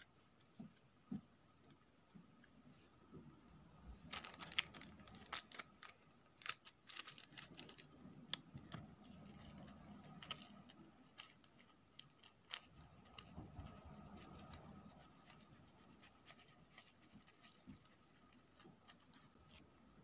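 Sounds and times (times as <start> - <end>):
plastic bag clicking and crinkling: 4.0 - 8.7.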